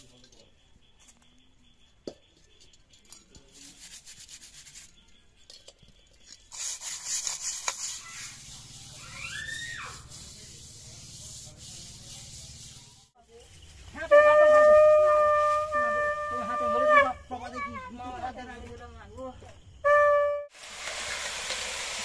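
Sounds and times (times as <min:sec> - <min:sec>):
straw scrubbing clay pot: 0:03.5 - 0:05.1, 0:06.4 - 0:13.2.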